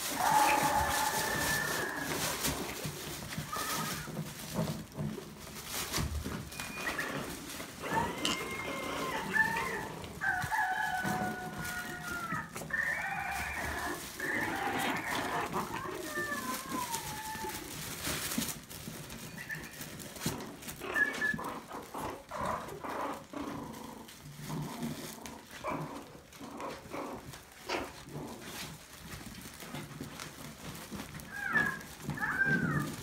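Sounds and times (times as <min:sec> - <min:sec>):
scuffling and rustling: 0:00.0 - 0:33.0
puppies yipping: 0:06.2 - 0:23.4, 0:30.0 - 0:33.0.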